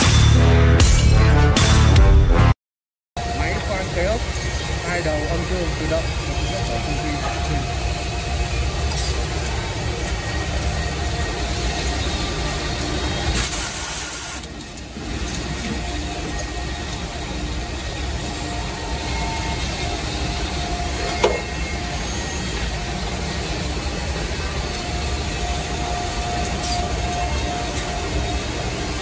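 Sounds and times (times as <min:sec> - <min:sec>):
drill motors humming: 0:03.2 - 0:29.0
loud hiss: 0:13.1 - 0:14.5.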